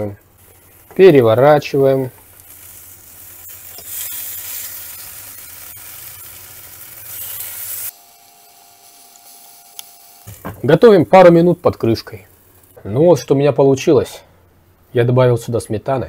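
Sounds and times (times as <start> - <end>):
fritters sizzling in hot oil: 0.0 - 10.6
faint steady hum: 0.0 - 16.0.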